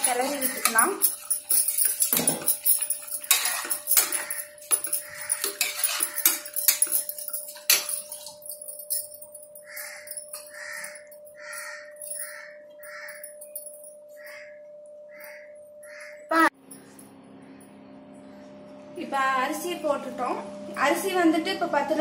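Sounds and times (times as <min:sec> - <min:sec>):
bangles jingling: 0:00.0 - 0:14.2
bird calling: 0:14.2 - 0:16.5.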